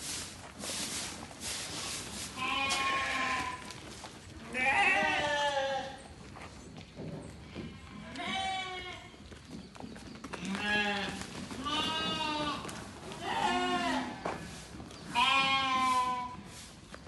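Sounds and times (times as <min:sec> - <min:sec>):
sheep bleating: 0:02.4 - 0:03.7, 0:04.5 - 0:06.0, 0:10.5 - 0:14.2, 0:15.1 - 0:16.4.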